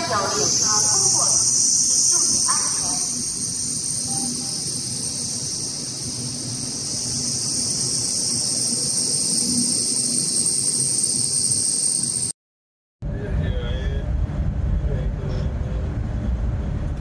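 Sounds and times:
train rumbling: 0:00.0 - 0:11.1, 0:13.0 - 0:17.0
high-pitched whistling hiss: 0:00.0 - 0:12.3.

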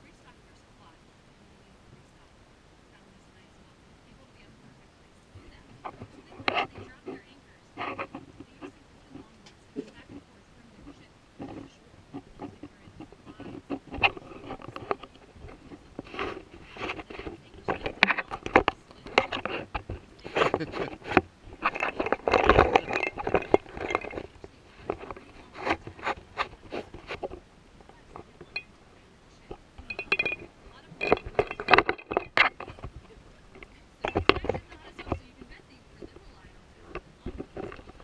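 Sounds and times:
low conversation: 0:00.0 - 0:38.0
plates and food clicking: 0:10.8 - 0:28.8, 0:29.4 - 0:38.0.

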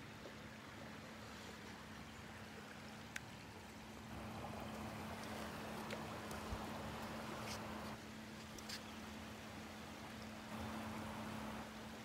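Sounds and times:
waves washing over sand: 0:04.0 - 0:08.0, 0:09.2 - 0:12.0.

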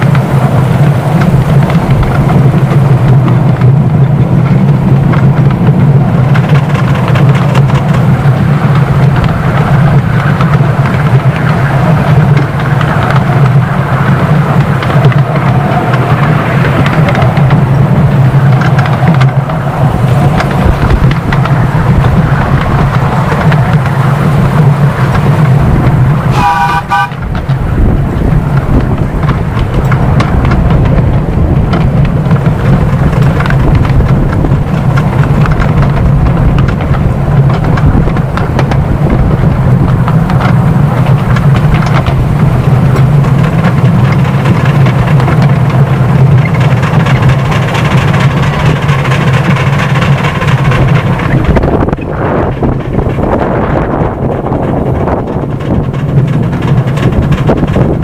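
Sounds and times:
miniature steam locomotive rumbling: 0:00.0 - 0:58.0
locomotive whistle toot: 0:26.3 - 0:27.3.

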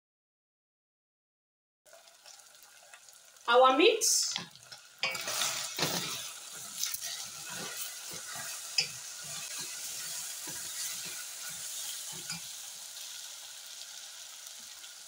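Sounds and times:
meat sizzling in a saucepan: 0:01.9 - 0:15.0
wooden spoon scraping a pan: 0:05.0 - 0:12.6.

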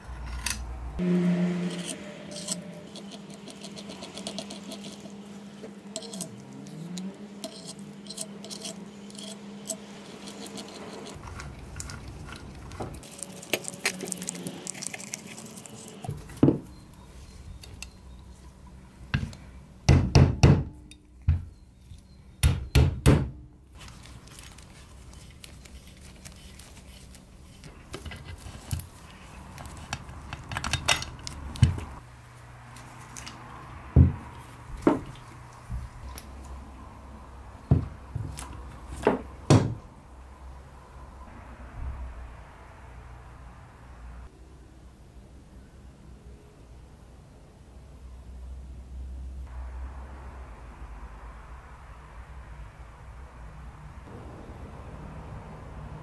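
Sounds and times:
metal parts clinking and knocking: 0:29.6 - 0:31.9.

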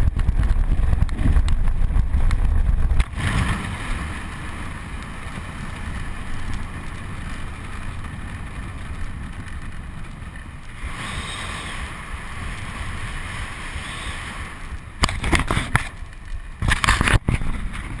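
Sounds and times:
tyre and road rumble: 0:00.0 - 0:18.0
wind rushing over microphone: 0:00.0 - 0:18.0
knocks and scrapes on camera: 0:15.0 - 0:16.0.

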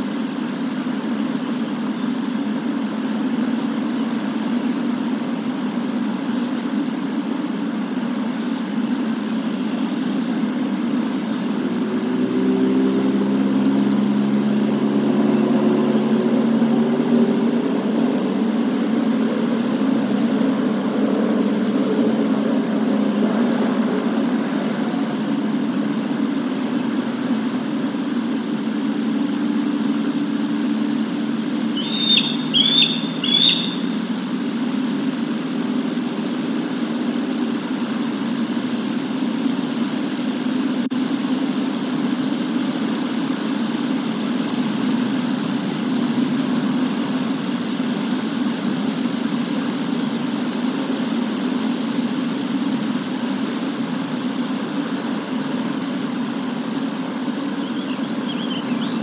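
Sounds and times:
low outdoor rumble: 0:00.0 - 0:59.0
faint high bird calls: 0:03.6 - 0:04.9, 0:31.6 - 0:34.1, 0:57.4 - 0:59.0
bird chirping: 0:03.8 - 0:04.8, 0:12.9 - 0:15.6, 0:28.1 - 0:28.9, 0:31.6 - 0:34.1, 0:57.5 - 0:59.0.

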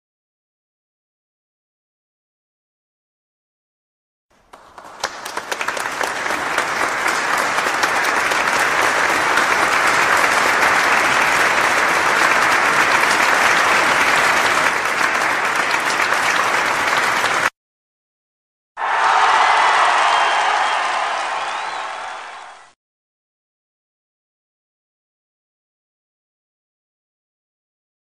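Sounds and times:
crowd applause: 0:04.4 - 0:17.5, 0:18.8 - 0:22.8.

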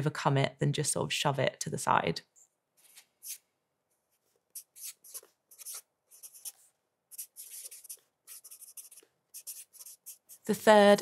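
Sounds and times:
marker writing on paper: 0:03.2 - 0:03.4, 0:04.4 - 0:10.6.

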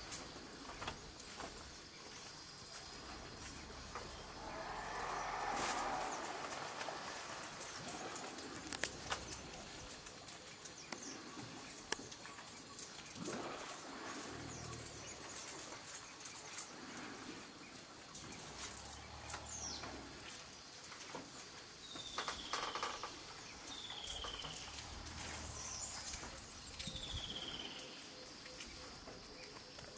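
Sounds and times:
insect hiss: 0:00.0 - 0:29.9
low rumbles: 0:02.5 - 0:10.9, 0:24.2 - 0:27.6
splashes: 0:02.7 - 0:21.7, 0:24.0 - 0:27.6.

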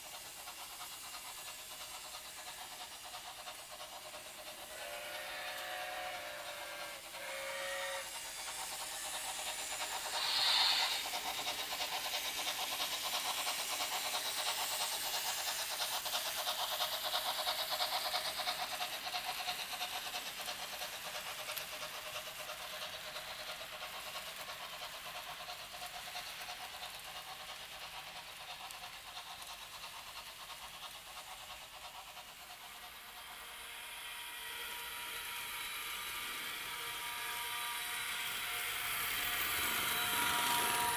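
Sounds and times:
hiss of steam: 0:00.0 - 0:40.9
model locomotive chuffing: 0:00.0 - 0:40.9
model train whistle blasts: 0:04.7 - 0:08.1, 0:10.2 - 0:11.0.

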